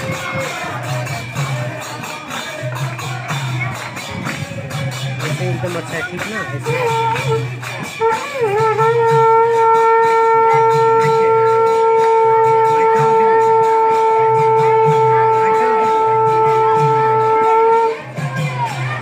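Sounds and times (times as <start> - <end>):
conch shell blown: 6.6 - 19.0.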